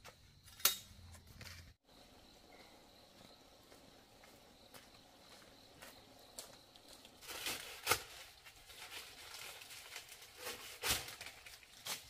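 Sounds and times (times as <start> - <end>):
rustling: 6.4 - 12.0.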